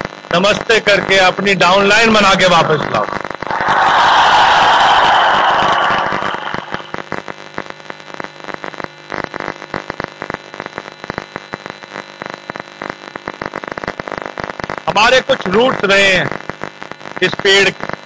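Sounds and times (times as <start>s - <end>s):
large audience applauding: 3.5s - 7.0s.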